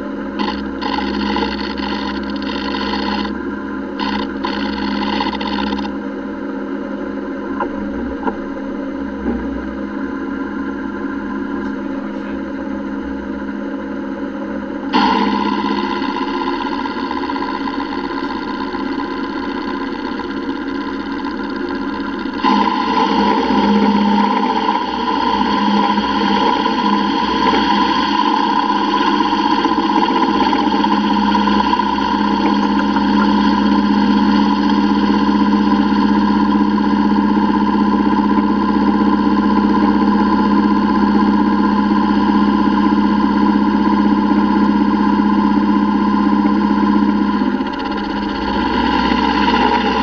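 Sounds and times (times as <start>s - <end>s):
milling machine hum and whine: 0.0s - 50.0s.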